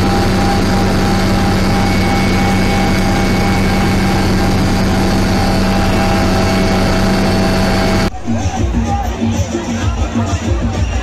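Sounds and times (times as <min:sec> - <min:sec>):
helicopter engine and rotor drone: 0:00.0 - 0:08.7.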